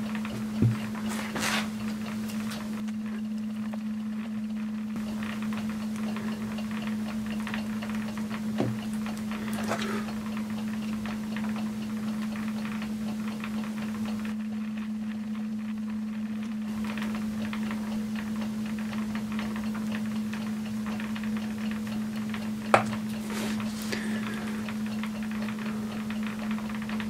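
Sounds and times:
low hum: 14.1s - 27.0s.

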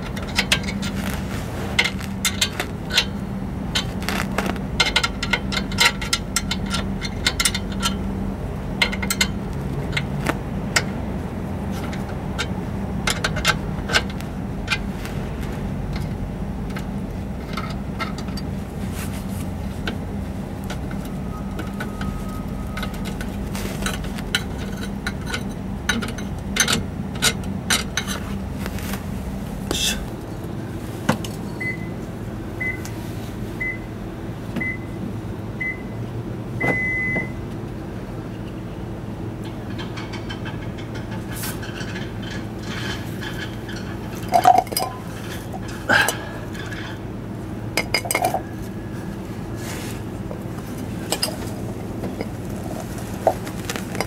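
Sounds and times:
wrench clinking against metal: 39.8s - 47.0s.

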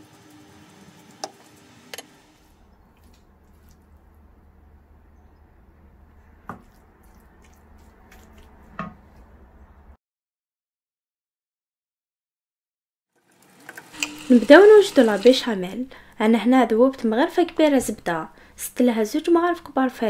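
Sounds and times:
wet stirring in frying pan: 6.5s - 9.2s.

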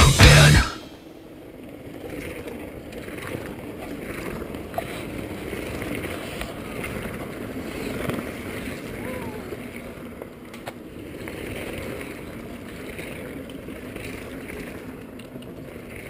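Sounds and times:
loud rock music: 0.0s - 0.9s
mountain bike rolling on dirt: 1.6s - 9.0s, 9.6s - 16.0s.

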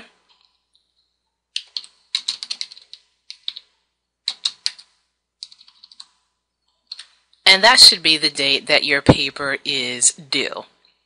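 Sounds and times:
keyboard typing clicks: 1.6s - 3.7s, 4.3s - 6.2s, 6.9s - 7.2s.

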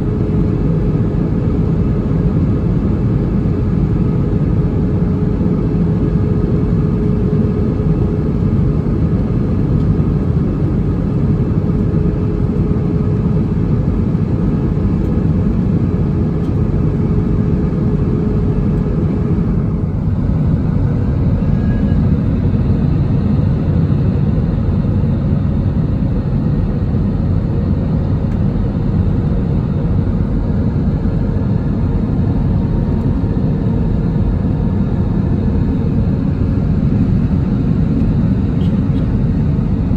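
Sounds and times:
jet engine and airflow rush: 0.0s - 39.9s.

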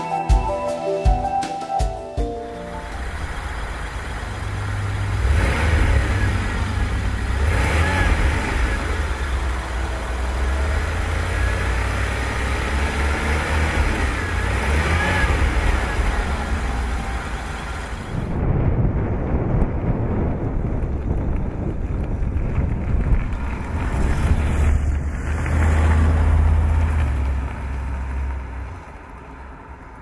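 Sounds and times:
car engine revving: 2.6s - 18.5s, 22.1s - 29.9s.

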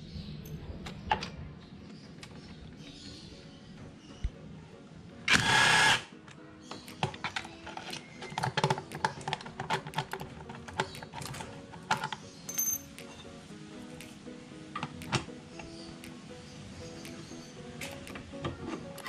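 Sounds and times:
faint background music: 0.0s - 19.0s
small metallic clicks and taps: 6.3s - 13.3s.

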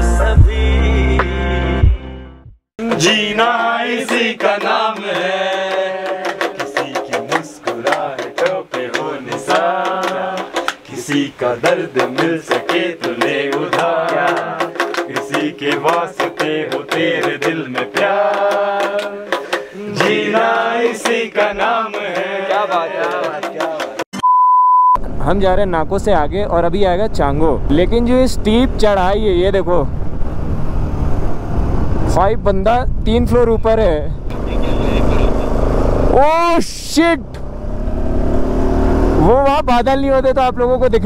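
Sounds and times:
man singing: 0.0s - 2.0s, 2.8s - 24.0s.

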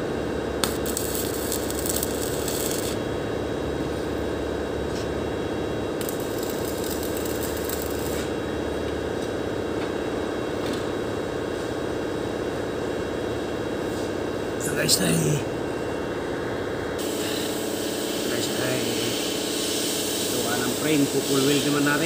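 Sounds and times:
steady hum: 0.0s - 9.3s, 12.8s - 19.0s
welding arc crackling and hissing: 0.6s - 3.1s, 6.0s - 8.5s, 17.0s - 22.0s.

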